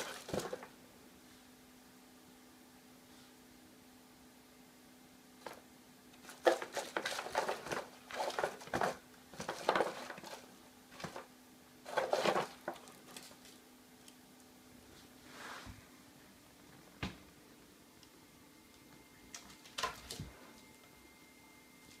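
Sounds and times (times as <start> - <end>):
cat scratching cardboard: 6.2 - 13.4.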